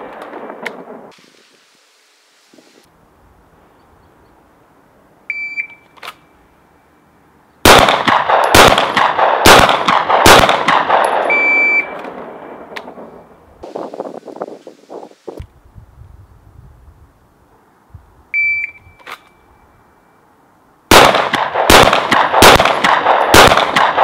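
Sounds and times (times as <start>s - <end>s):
pistol shots echoing: 7.6s - 11.4s, 20.9s - 24.0s
shot timer beep: 11.3s - 11.9s, 18.4s - 19.0s.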